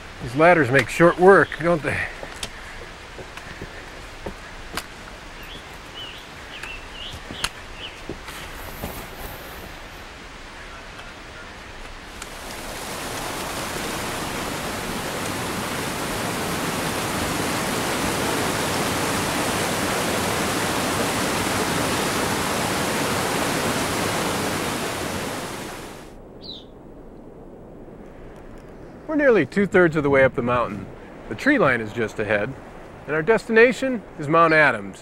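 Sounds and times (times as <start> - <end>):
stream cascading over rocks: 0.0 - 26.1.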